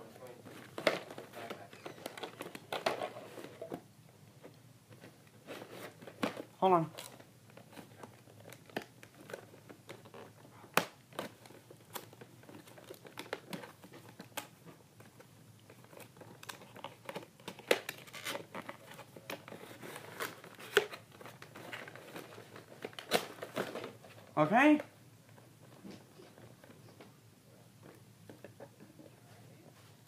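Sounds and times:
plastic packaging crinkling: 5.4s - 14.5s, 15.1s - 24.4s.

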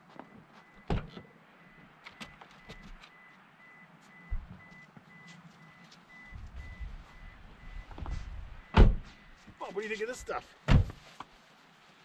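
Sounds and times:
high repeating warning beep: 1.6s - 7.9s
loud thump: 8.8s - 9.2s, 10.7s - 11.0s.

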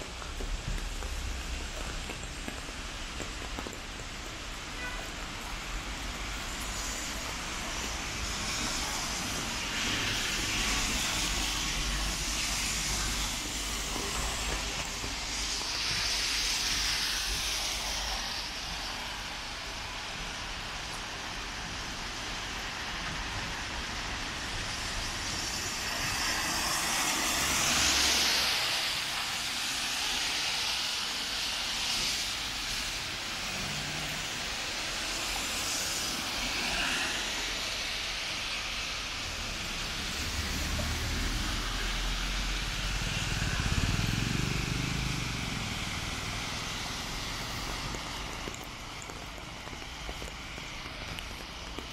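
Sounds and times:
rain hissing: 0.0s - 51.9s
tyres swishing on wet road: 0.0s - 51.9s
heavy vehicle rumbling by: 40.0s - 47.7s.

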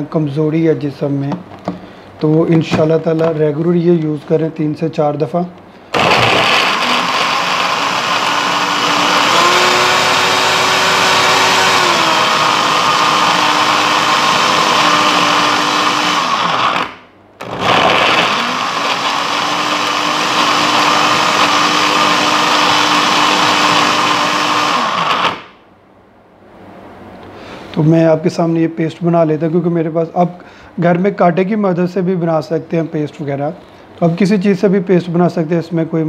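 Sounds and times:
mixer grinder running: 5.9s - 25.5s.

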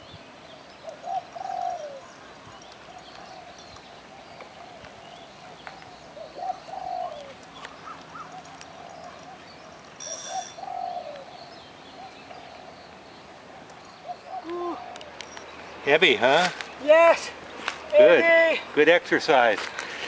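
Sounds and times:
faint bird chirping: 0.0s - 18.1s
doves cooing: 0.8s - 12.8s, 13.5s - 15.2s.

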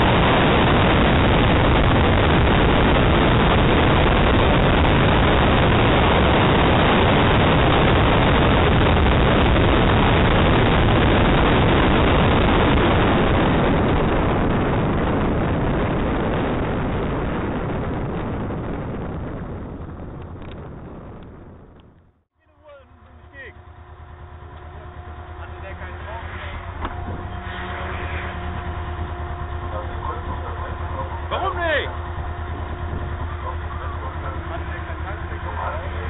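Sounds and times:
wind and car noise: 0.0s - 36.0s.

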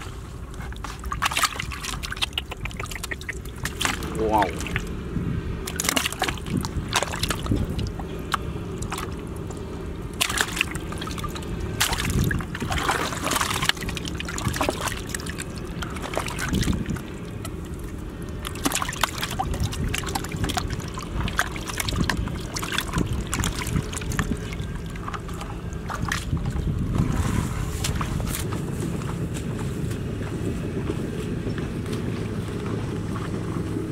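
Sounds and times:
water splashing in plastic bucket: 0.6s - 4.9s, 5.6s - 28.1s.

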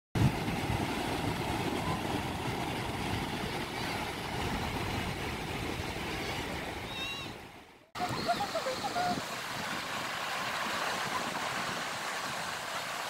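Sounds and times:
small waves breaking on beach: 0.2s - 13.0s.

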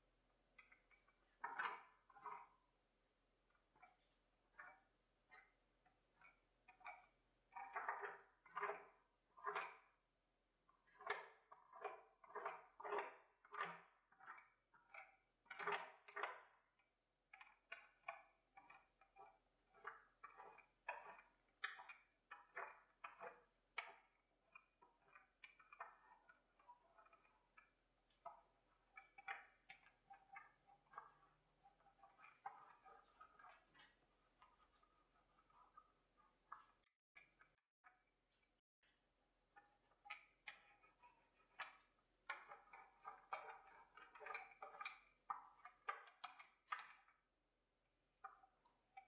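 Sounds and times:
paint roller strokes: 28.4s - 37.3s, 39.6s - 45.4s.

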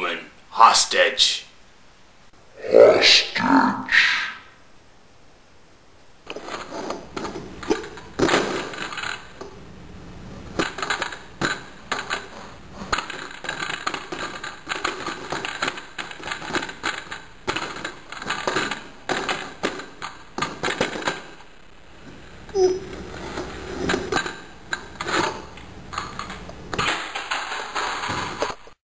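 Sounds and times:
plastic toys clacking on table: 6.3s - 9.5s, 10.6s - 21.4s, 22.5s - 28.6s.

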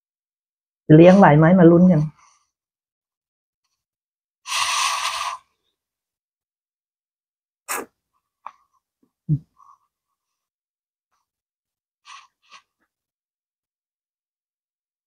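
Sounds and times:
sharp mouth sound: 4.5s - 5.5s, 7.7s - 8.0s
person slurping noodles: 4.5s - 5.6s, 7.7s - 8.0s.

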